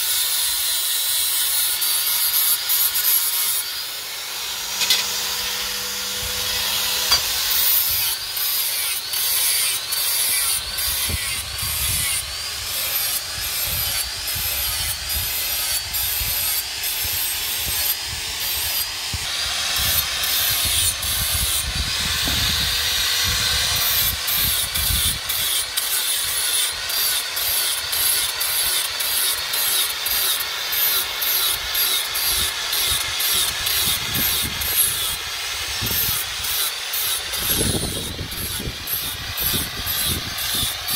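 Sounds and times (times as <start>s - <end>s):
angle grinder grinding steel: 0.0s - 40.9s.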